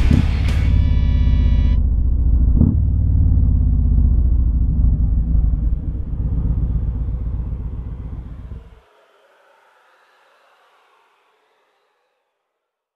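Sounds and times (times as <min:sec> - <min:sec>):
motorcycle engine rumble: 0:00.0 - 0:08.8
wind and road noise: 0:00.0 - 0:09.1.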